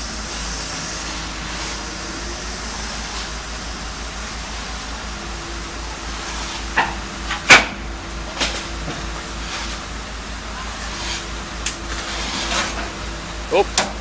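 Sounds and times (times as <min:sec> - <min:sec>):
hiss: 0:00.0 - 0:07.0, 0:09.2 - 0:12.9
excavator diesel engine running: 0:00.0 - 0:14.0.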